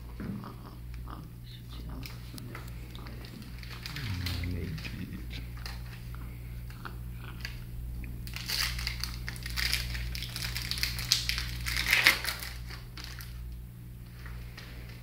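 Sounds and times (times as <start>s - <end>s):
steady low hum: 0.0s - 15.0s
rustling crinkling handling noise: 2.0s - 6.1s, 8.2s - 15.0s.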